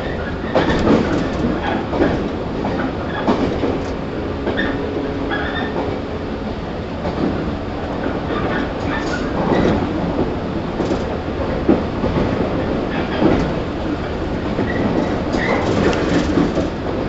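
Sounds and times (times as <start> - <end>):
train wheels rumbling: 0.0 - 17.0
high wheel squeal: 4.5 - 5.8.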